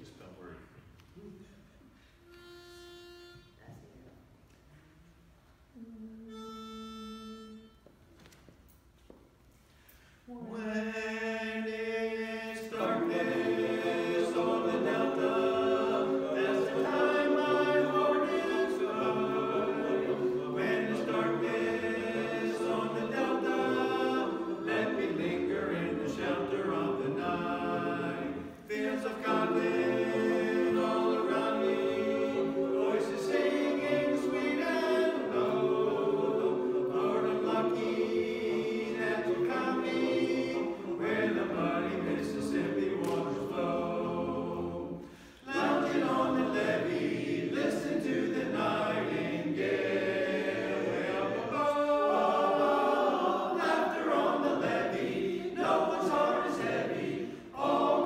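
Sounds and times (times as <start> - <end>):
singer breath: 1.8 - 2.4, 9.6 - 10.4, 45.0 - 45.5
chorus singing a cappella: 10.3 - 58.0.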